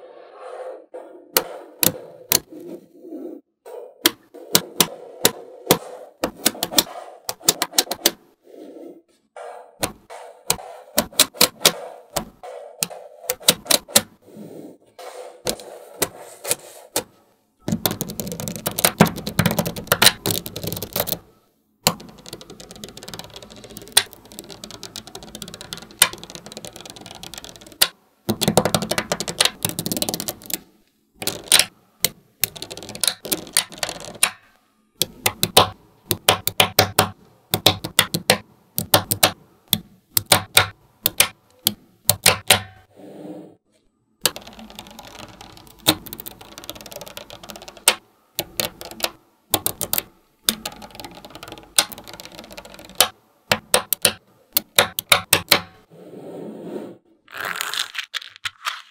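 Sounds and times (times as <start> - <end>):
magnetic balls clicking together: 4.0 - 8.2, 9.8 - 14.2, 17.6 - 42.9, 44.2 - 55.9
balls clattering together: 44.3 - 55.9.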